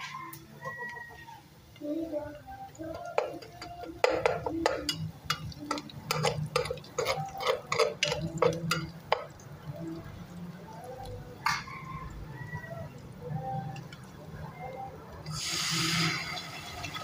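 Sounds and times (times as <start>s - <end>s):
metal spoon stirring in metal pot: 1.8s - 14.7s.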